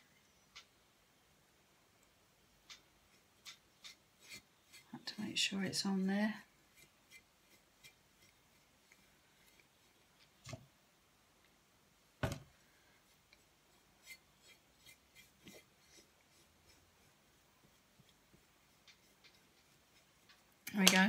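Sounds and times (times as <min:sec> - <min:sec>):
brush rubbing on bottle: 0:03.1 - 0:05.5, 0:06.4 - 0:10.3, 0:13.0 - 0:20.4.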